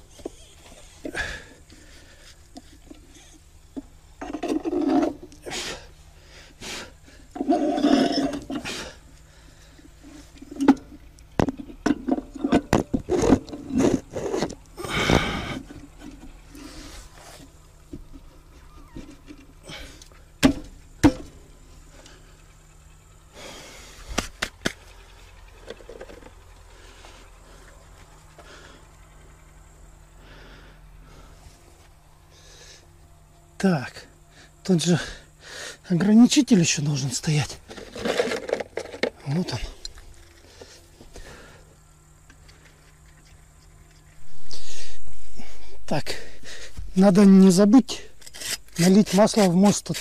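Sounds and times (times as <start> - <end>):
metal scraping against metal: 4.2 - 5.3, 7.4 - 8.9, 47.9 - 50.0.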